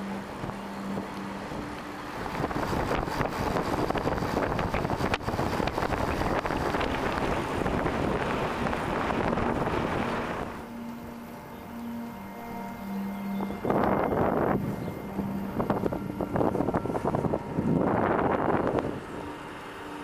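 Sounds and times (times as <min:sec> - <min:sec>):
wind rushing over microphone: 0:00.0 - 0:10.7, 0:13.2 - 0:20.0.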